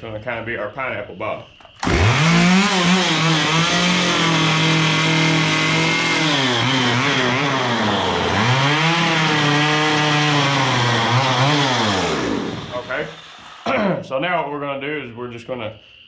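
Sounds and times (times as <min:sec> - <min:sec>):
chainsaw cutting wood: 0:01.8 - 0:13.8.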